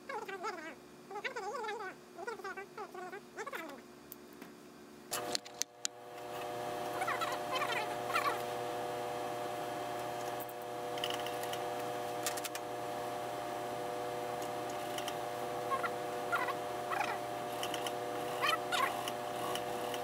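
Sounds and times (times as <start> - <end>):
sewing machine motor hum: 5.1 - 20.0.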